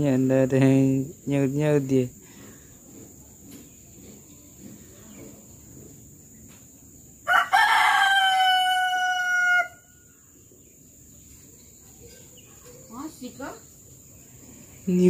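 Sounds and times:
rooster crowing: 7.2s - 10.2s.

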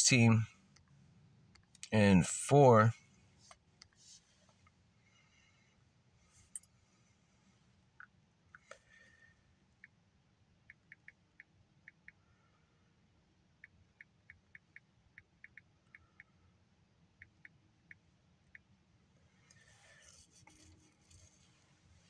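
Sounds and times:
soft rustle: 3.2s - 5.3s, 19.3s - 22.0s.

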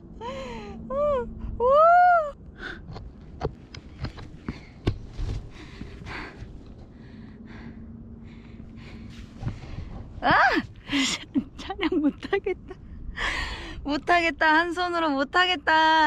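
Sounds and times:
woman breathing hard: 0.1s - 1.6s, 5.4s - 10.0s, 12.9s - 13.8s
climbing scuffs and clicks: 2.8s - 7.0s, 8.5s - 11.0s.

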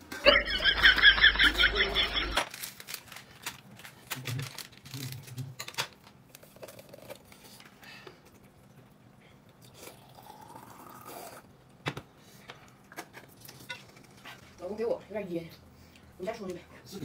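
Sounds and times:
food packaging rustling: 2.4s - 7.8s.

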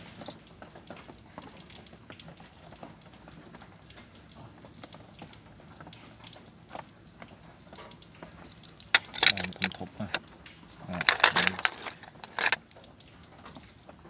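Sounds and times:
faint handling clicks and rubbing: 8.5s - 12.6s.

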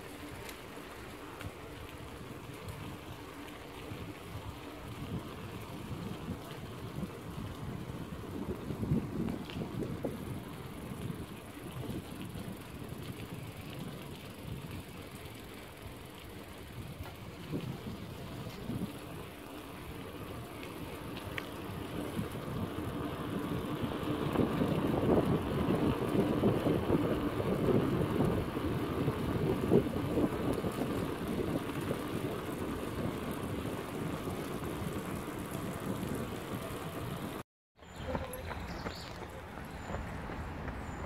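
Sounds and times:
bicycle tyres rolling: 0.0s - 41.0s
wind on microphone: 4.0s - 14.9s, 16.8s - 19.2s.

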